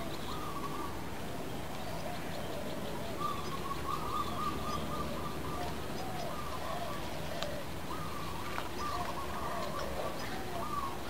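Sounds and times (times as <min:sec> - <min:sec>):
short curving bird calls: 0:00.0 - 0:01.0, 0:01.8 - 0:11.0
wavering whistled bird call: 0:00.0 - 0:01.0, 0:03.0 - 0:07.0.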